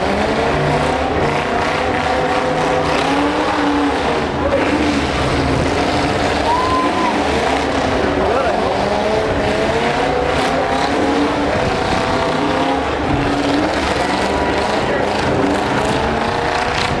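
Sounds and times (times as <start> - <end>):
truck engines revving: 0.0 - 17.0.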